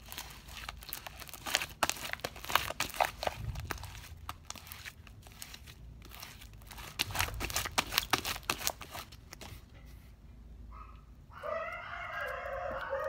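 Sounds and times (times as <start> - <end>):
slime crackling and popping: 0.0 - 9.4.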